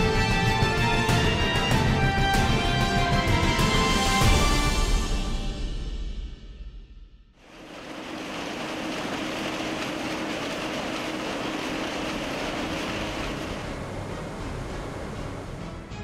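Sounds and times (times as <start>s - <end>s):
background music: 0.0s - 6.9s, 12.7s - 16.0s.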